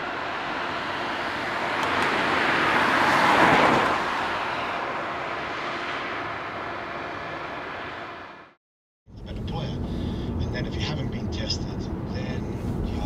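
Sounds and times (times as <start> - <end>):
car passing by: 0.0 - 8.6
background traffic: 0.0 - 13.0.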